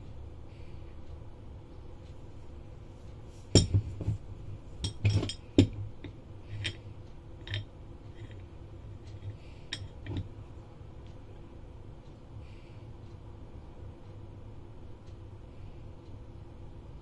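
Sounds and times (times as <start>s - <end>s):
socket wrench clinking and clicking: 7.4s - 8.4s.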